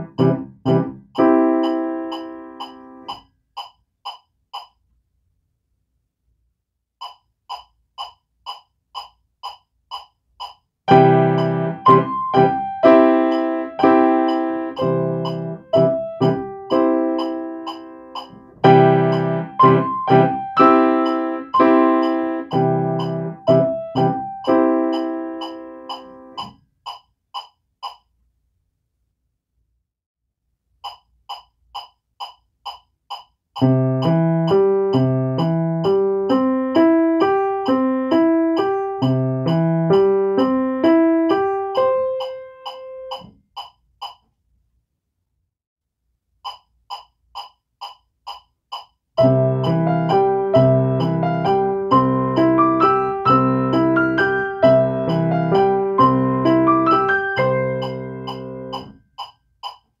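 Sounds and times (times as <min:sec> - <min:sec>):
grand piano chords: 0:00.0 - 0:03.1, 0:10.9 - 0:26.4, 0:49.2 - 0:58.8
metronome ticking: 0:00.0 - 0:05.0, 0:07.0 - 0:28.2, 0:30.8 - 0:44.3, 0:46.4 - 1:00.0.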